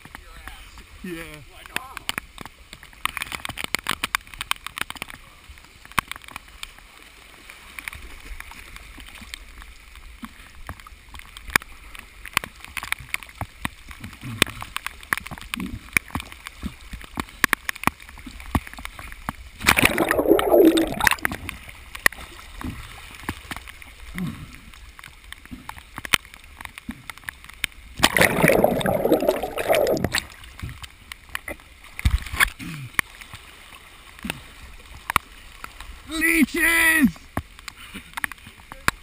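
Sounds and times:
water sloshing and splashing: 0:00.0 - 0:36.1
water ticking on camera housing: 0:01.6 - 0:05.2, 0:05.8 - 0:06.8, 0:07.8 - 0:23.8, 0:24.7 - 0:33.1
loud splash: 0:19.6 - 0:21.6, 0:28.0 - 0:30.4.

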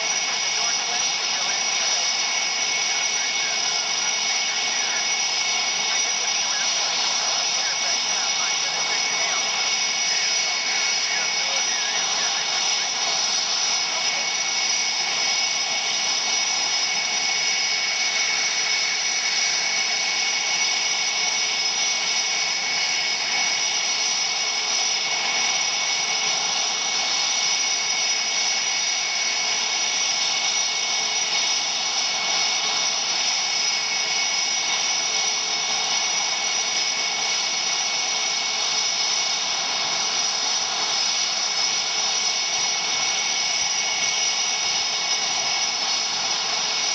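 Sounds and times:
rush of noise: 0:00.0 - 0:20.2
jet engine whine: 0:00.0 - 0:46.9.

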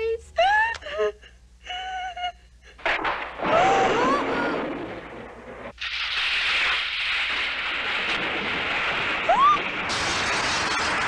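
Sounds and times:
glass shattering: 0:02.8 - 0:11.0.

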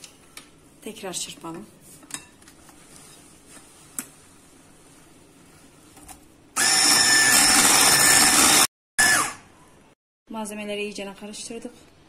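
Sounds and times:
electric hand mixer whining: 0:06.6 - 0:09.4.

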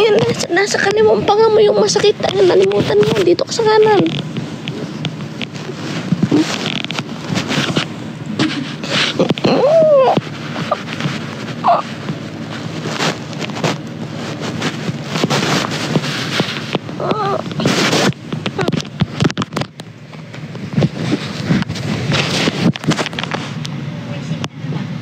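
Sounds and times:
microphone rubbing against cloth: 0:00.0 - 0:19.7
handling clicks and knocks: 0:10.1 - 0:21.8.

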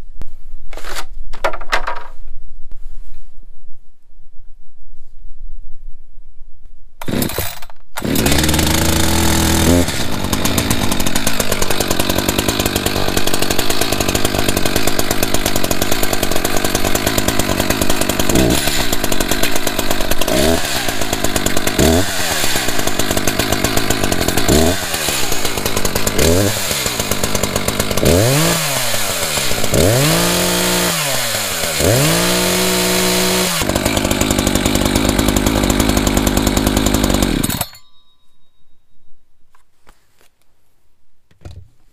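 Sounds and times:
chainsaw engine revving and idling: 0:07.0 - 0:37.6.

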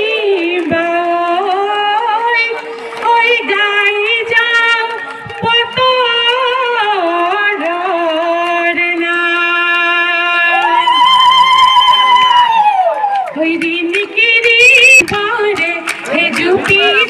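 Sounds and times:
woman singing folk song: 0:13.4 - 0:17.0.

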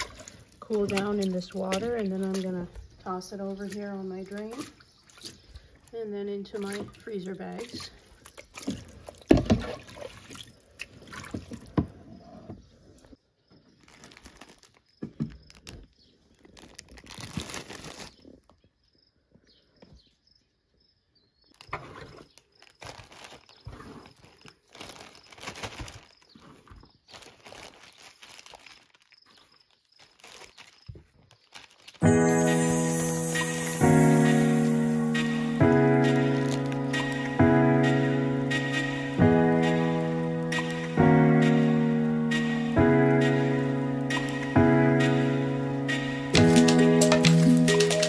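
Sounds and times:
water splashing and dripping: 0:00.0 - 0:11.9, 0:32.0 - 0:48.0.

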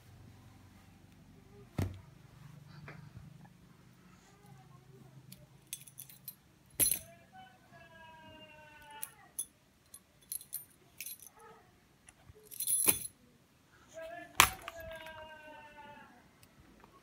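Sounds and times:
metal keys jangling: 0:05.7 - 0:07.1, 0:09.0 - 0:11.4, 0:12.5 - 0:13.1.

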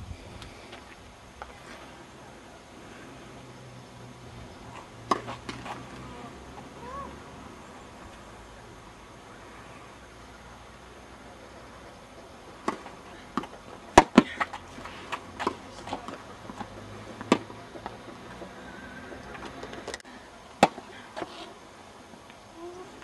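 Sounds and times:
tennis ball bouncing on court: 0:04.7 - 0:06.7, 0:12.6 - 0:19.9
tennis ball hit by racket: 0:04.7 - 0:06.7, 0:12.6 - 0:18.6, 0:20.6 - 0:21.3.

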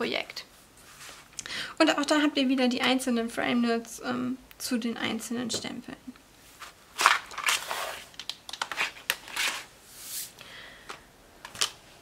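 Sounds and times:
plastic crinkling and rustling: 0:06.5 - 0:09.7.

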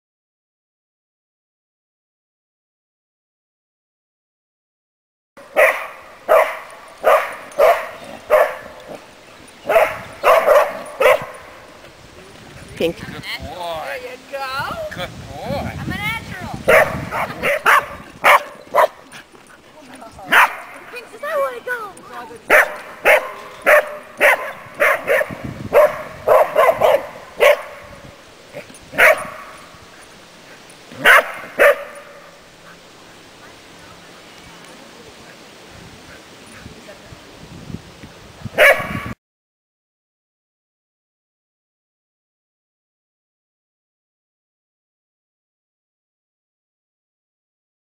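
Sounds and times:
dog barking: 0:05.5 - 0:09.0, 0:09.6 - 0:11.5, 0:16.7 - 0:19.0, 0:20.3 - 0:20.8, 0:22.5 - 0:28.0, 0:28.9 - 0:29.7, 0:31.0 - 0:32.4, 0:38.6 - 0:39.2.

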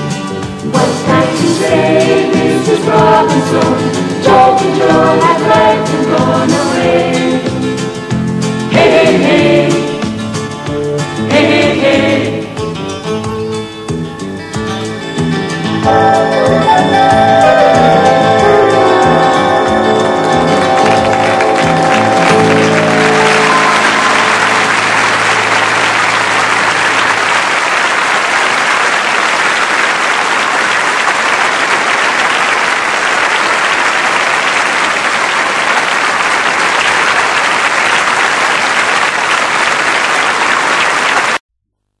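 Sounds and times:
studio audience applauding: 0:15.9 - 0:41.4.

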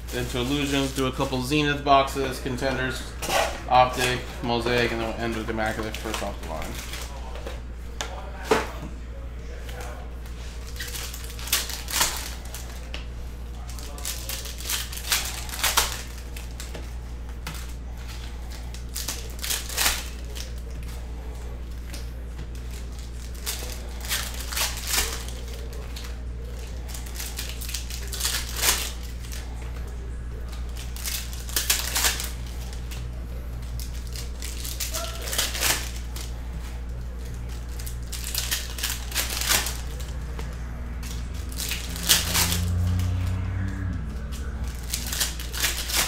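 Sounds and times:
foil wrapper tearing and crinkling: 0:00.0 - 0:01.6, 0:02.4 - 0:07.2, 0:10.5 - 0:21.0, 0:21.6 - 0:46.0
cards being handled: 0:00.0 - 0:46.0
steady low hum: 0:00.0 - 0:46.0.

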